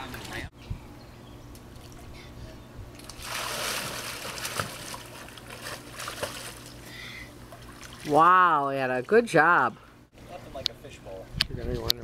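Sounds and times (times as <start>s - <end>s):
water splash: 3.0s - 6.8s.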